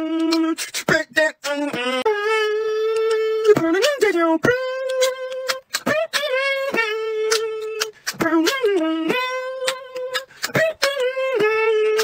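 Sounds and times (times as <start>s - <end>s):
hummed sung notes: 0.0s - 0.6s, 1.4s - 12.0s
mouth clicks and kick sounds: 0.0s - 12.0s
person beatboxing: 0.0s - 12.0s.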